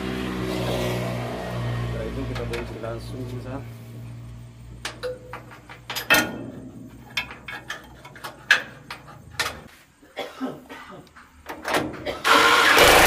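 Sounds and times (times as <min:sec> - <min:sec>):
wrench clinking on metal: 0:04.8 - 0:09.6.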